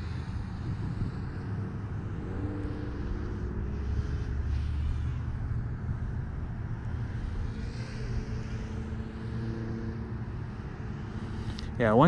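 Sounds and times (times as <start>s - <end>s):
faint steady tones: 0.0s - 12.0s
low mechanical hum: 0.0s - 12.0s.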